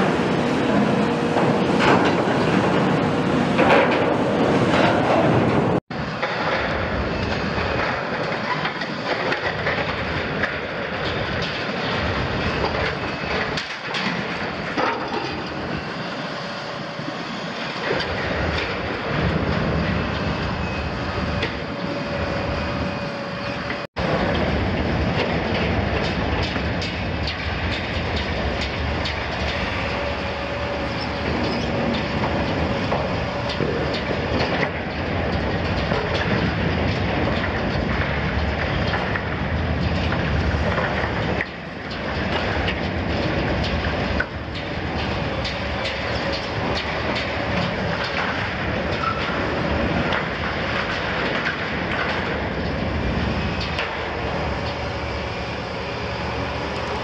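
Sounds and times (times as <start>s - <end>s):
diesel engine and hydraulics: 0.0s - 57.0s
metallic squeals and clanks: 29.5s - 34.3s.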